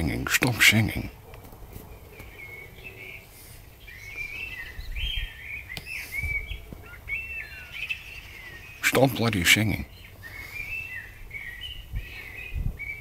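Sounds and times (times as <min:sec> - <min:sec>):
songbirds chirping and warbling: 0:00.0 - 0:13.0.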